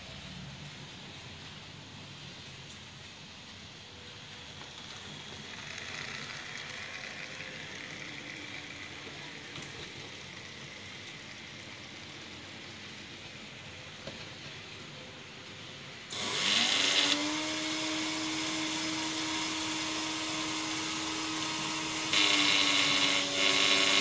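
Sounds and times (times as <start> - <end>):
model train wheels rolling on rail: 2.2 - 17.3
faint motor hum: 2.2 - 24.0.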